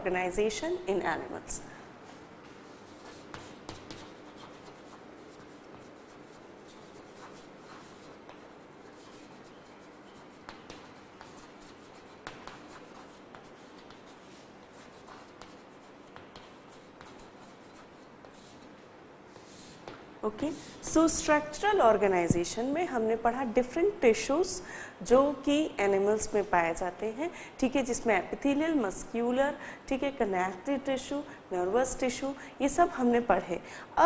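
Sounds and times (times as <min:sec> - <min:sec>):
chalk scratching on blackboard: 0:02.1 - 0:20.0
chalk tapping on blackboard: 0:02.4 - 0:20.1.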